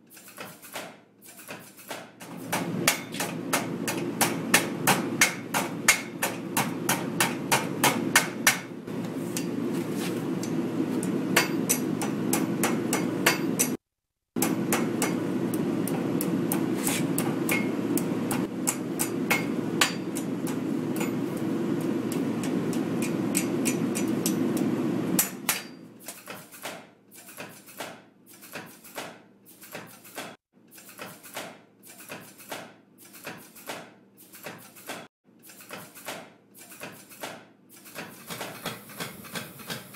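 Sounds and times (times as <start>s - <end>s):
hammer ringing on anvil: 10.4s - 13.7s, 18.7s - 20.3s, 21.0s - 21.2s, 25.2s - 25.9s.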